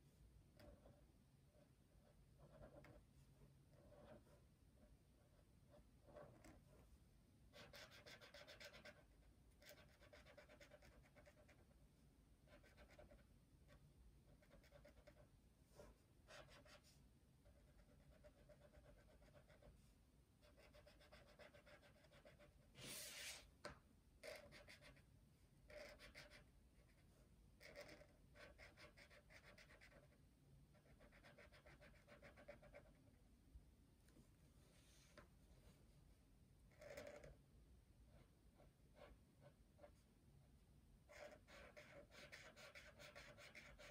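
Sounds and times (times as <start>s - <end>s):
pen scratching on paper: 0.6s - 1.7s, 2.4s - 3.0s, 3.7s - 6.8s, 7.5s - 11.8s, 12.5s - 19.7s, 20.4s - 23.4s, 24.2s - 25.0s, 25.7s - 27.0s, 27.6s - 33.0s, 36.7s - 37.4s, 38.1s - 40.0s, 41.1s - 43.9s.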